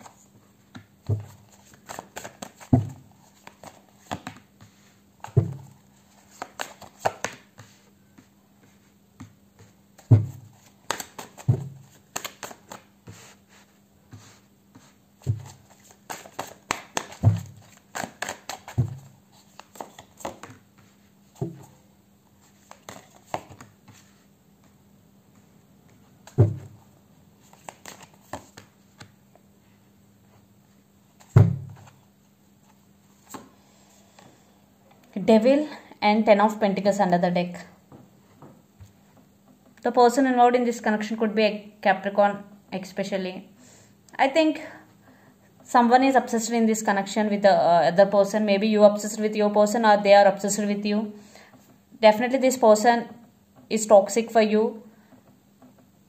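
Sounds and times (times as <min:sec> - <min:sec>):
deck of cards rustling: 0:01.0 - 0:08.9, 0:09.6 - 0:21.8, 0:22.4 - 0:24.8, 0:26.0 - 0:29.1.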